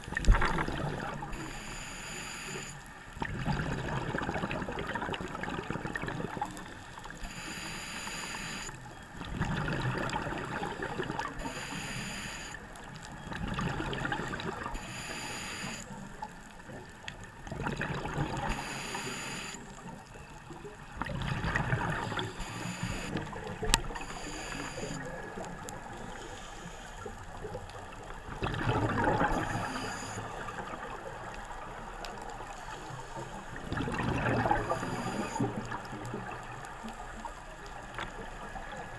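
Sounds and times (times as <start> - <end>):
gurgling exhaled bubbles: 0.0 - 1.6, 3.2 - 6.7, 9.2 - 11.7, 13.2 - 14.8, 17.4 - 19.0, 20.5 - 26.2, 27.0 - 32.0, 32.9 - 38.9
hissing regulator inhale: 1.3 - 2.8, 7.2 - 8.8, 11.4 - 12.6, 14.8 - 15.9, 18.5 - 19.7, 22.2 - 23.2, 24.0 - 25.2, 26.0 - 27.2, 29.3 - 30.5, 34.6 - 35.6.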